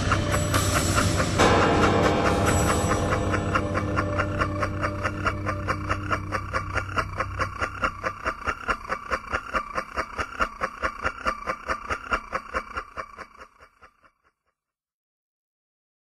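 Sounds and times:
trance music: 0.0 - 9.1
fast ticking percussion: 0.0 - 14.2.

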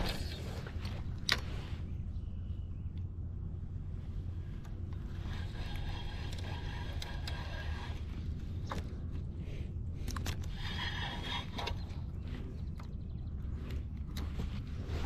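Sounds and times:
wind rumble on microphone: 0.0 - 15.0
spinning reel gears whirring: 5.0 - 8.0, 10.2 - 11.8.

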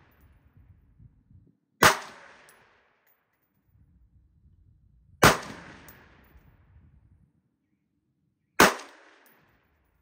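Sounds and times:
rifle shot with echo: 1.8 - 3.0, 5.2 - 6.4, 8.6 - 9.6.

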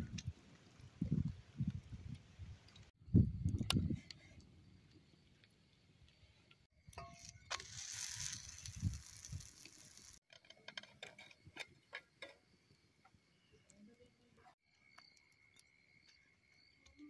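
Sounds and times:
clicks and pops of cooking: 6.8 - 10.6
griddle hiss: 7.0 - 10.2.

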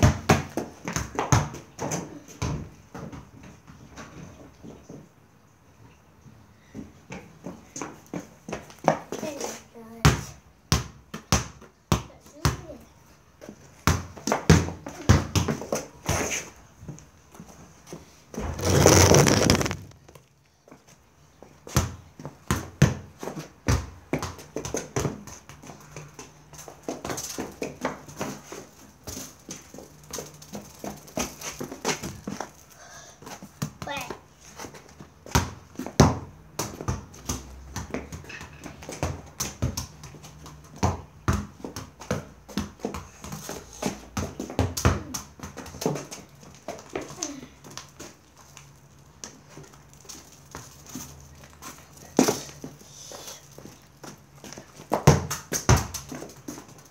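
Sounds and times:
ball scuffing: 13.4 - 21.0, 21.6 - 56.9
football thuds: 18.4 - 20.1, 54.8 - 56.3.

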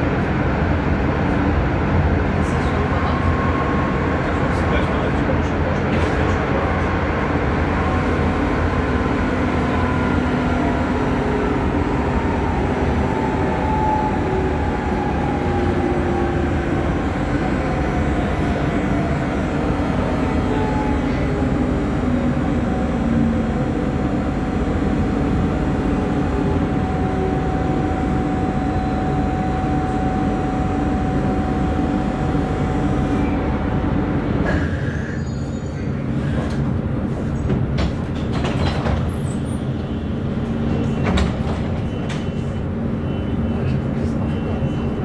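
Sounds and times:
wheels rumbling on rail: 0.0 - 45.0
held whine: 7.7 - 34.4.

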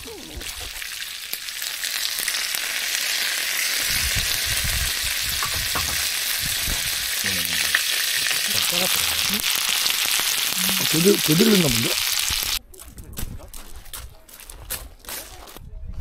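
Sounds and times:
food sizzling in hot fat: 0.0 - 12.6.

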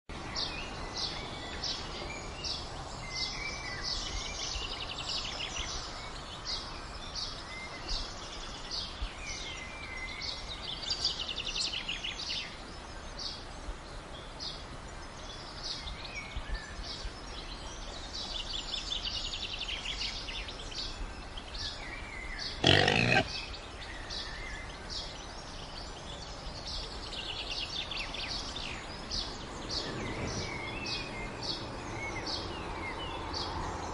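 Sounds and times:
birds chirping and singing: 14.2 - 33.6
pig call: 22.6 - 23.3.

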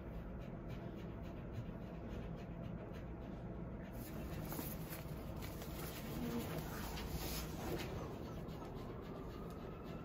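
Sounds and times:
dog panting softly: 0.0 - 10.0.

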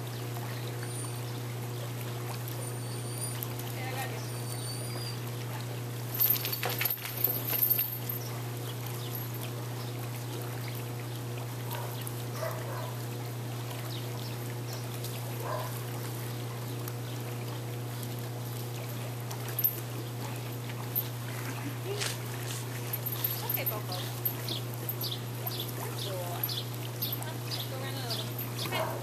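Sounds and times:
steady low hum: 0.0 - 29.0
dog whining: 2.6 - 3.5, 4.2 - 5.4
dog splashing in water: 5.1 - 10.9.

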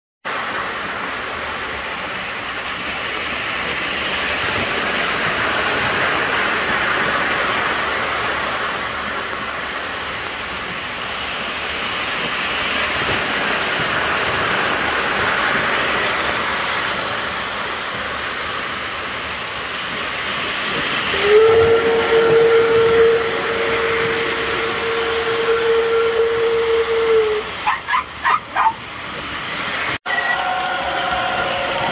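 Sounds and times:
model trains rolling: 0.3 - 31.9
electronic train whistle: 21.1 - 28.7, 30.1 - 31.9.

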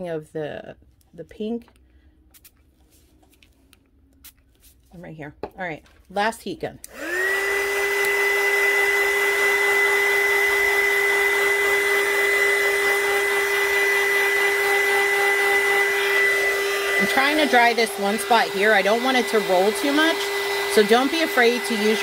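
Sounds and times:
heat gun whining: 6.8 - 22.0.

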